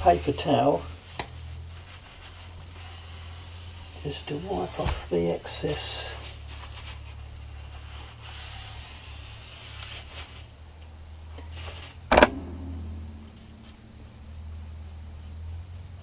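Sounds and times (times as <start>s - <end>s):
steady low hum: 0.0s - 16.0s
paper towel rubbing a brush: 0.2s - 10.5s
sharp knock: 12.1s - 14.7s.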